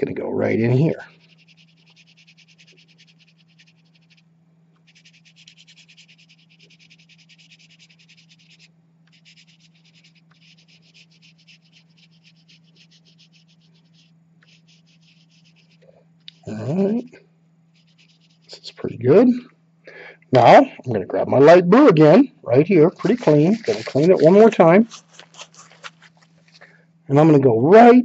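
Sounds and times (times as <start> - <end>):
faint low hum: 0.0 - 28.0
oil pastel scraping on paper: 1.1 - 4.2, 4.8 - 17.0, 17.8 - 18.8, 22.9 - 26.6.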